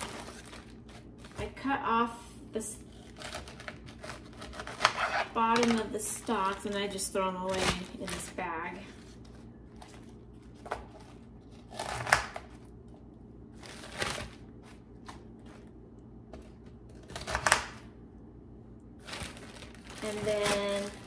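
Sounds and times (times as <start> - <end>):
knife cutting lettuce: 2.9 - 5.8, 11.5 - 12.6.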